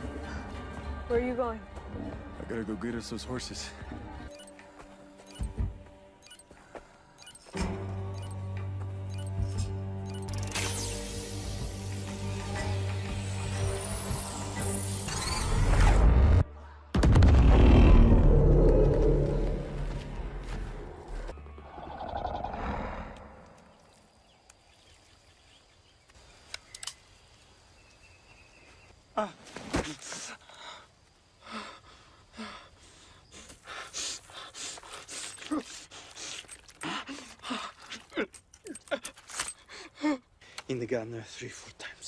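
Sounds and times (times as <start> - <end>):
deep rumble: 16.4 - 21.3.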